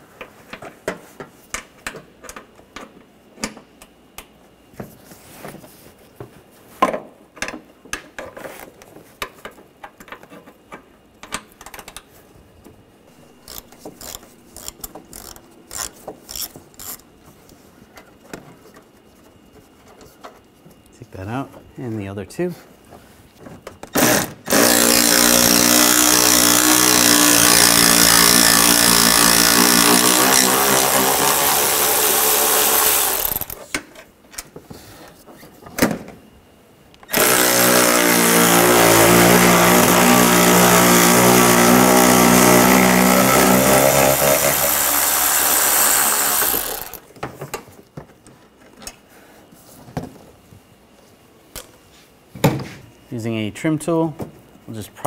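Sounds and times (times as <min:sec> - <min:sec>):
cordless power tool spinning socket: 0:24.0 - 0:33.6, 0:37.1 - 0:38.8, 0:44.4 - 0:47.1.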